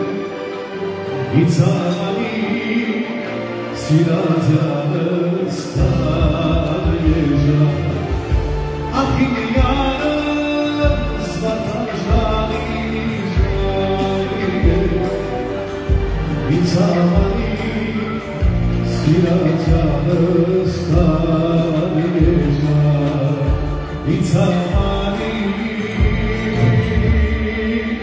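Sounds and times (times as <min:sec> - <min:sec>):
electronic keyboard: 0:00.0 - 0:28.0
man singing into a microphone: 0:00.0 - 0:28.0.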